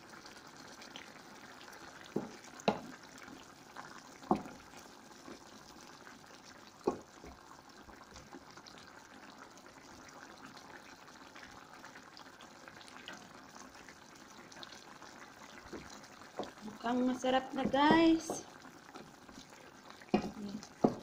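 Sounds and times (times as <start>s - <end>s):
curry simmering with small pops: 0.0s - 21.0s.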